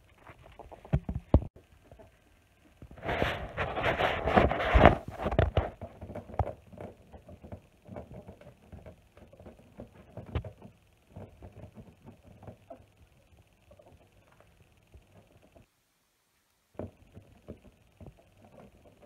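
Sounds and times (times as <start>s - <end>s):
ferret scratching fabric: 2.9s - 5.8s.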